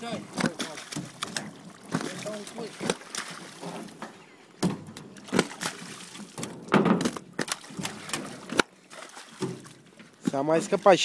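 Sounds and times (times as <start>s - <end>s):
fish splashing into water: 0.3s - 3.7s, 5.2s - 9.8s.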